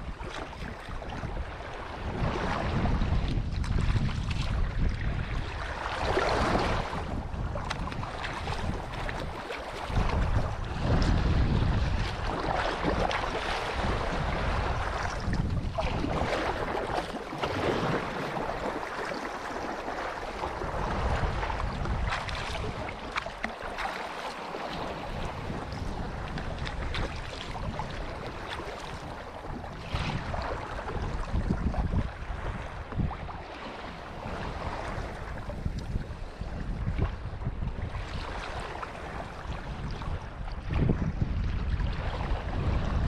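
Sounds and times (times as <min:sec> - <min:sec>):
water rushing along a hull: 0:00.0 - 0:43.0
wind buffeting microphone: 0:00.0 - 0:43.0.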